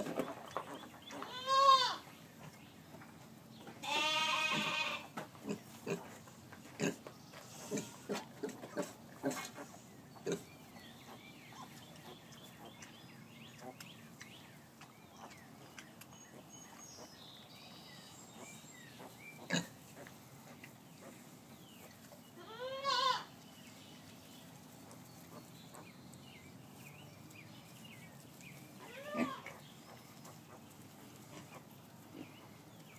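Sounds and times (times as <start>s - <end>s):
piglets squealing: 28.8s - 29.6s.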